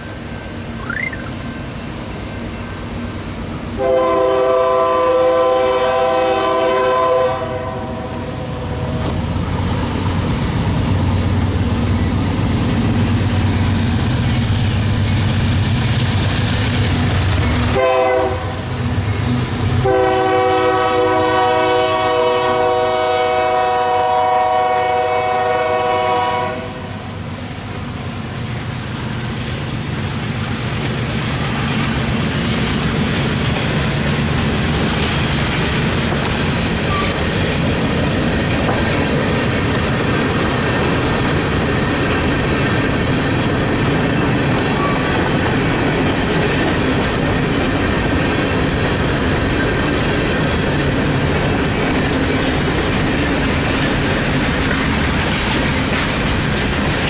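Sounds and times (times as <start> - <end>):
train rumble: 0.0 - 57.0
locomotive air horn blasts: 3.8 - 8.9, 17.7 - 18.8, 19.8 - 27.1.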